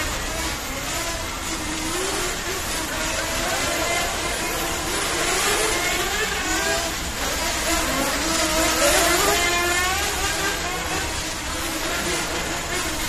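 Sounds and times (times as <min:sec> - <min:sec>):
electric toy car motors whining: 0:00.0 - 0:13.0.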